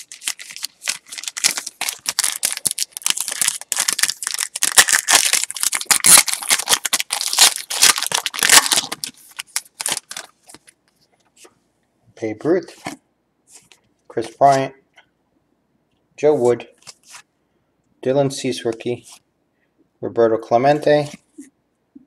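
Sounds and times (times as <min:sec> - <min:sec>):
plastic wrapper crinkling and tearing: 0:00.0 - 0:10.8.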